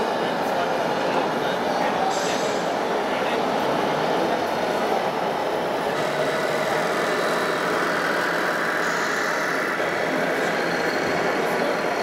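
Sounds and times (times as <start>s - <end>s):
exhibition hall din: 0.0s - 12.0s
model truck engine: 5.4s - 12.0s.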